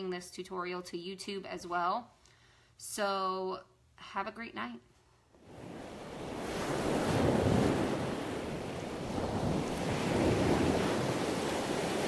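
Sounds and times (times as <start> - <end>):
ocean waves washing in: 5.4 - 12.0.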